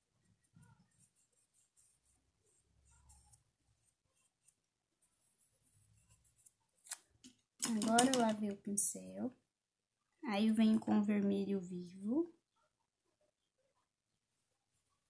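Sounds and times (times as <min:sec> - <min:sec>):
paintbrush scratching on cloth: 0:00.2 - 0:06.5.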